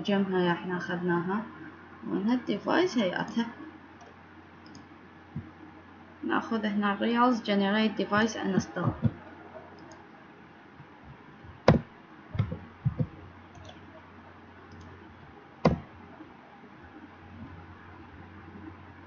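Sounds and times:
computer keyboard clicks: 0:15.6 - 0:15.8.

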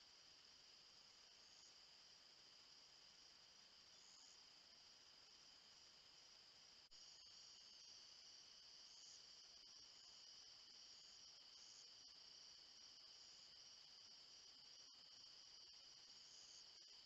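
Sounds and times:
insects trilling: 0:00.0 - 0:17.0
high insect buzz: 0:00.2 - 0:17.0.

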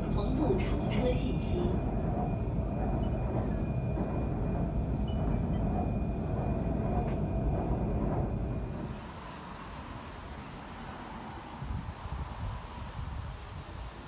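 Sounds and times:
train low rumble: 0:00.0 - 0:14.0.

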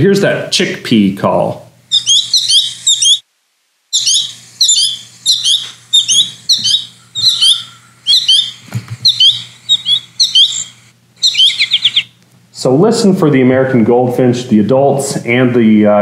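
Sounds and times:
goldfinches calling: 0:01.9 - 0:03.2, 0:03.9 - 0:12.2.

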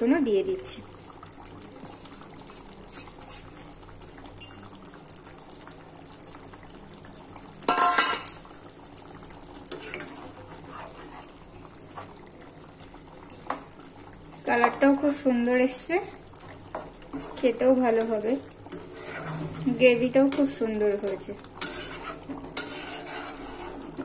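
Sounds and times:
curry simmering in a pan: 0:00.0 - 0:24.0
kitchen utensils clattering: 0:07.7 - 0:08.4.

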